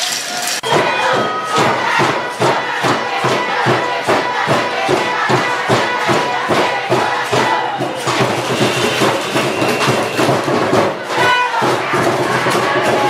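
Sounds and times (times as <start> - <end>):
spectators cheering and chanting: 0.0 - 13.0
fast steady drum beat: 0.6 - 13.0.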